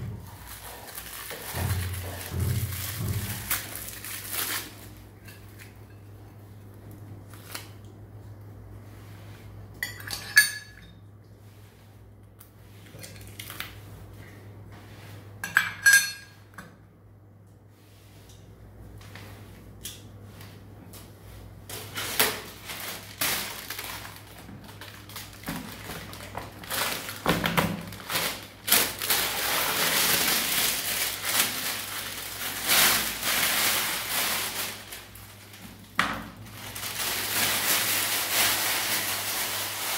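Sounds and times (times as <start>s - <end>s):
plastic wrapping rustling: 0.0s - 5.9s, 21.4s - 39.9s.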